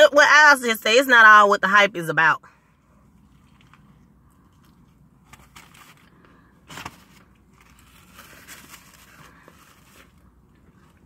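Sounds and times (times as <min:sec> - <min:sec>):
paper crinkling and rustling: 0:03.2 - 0:11.0.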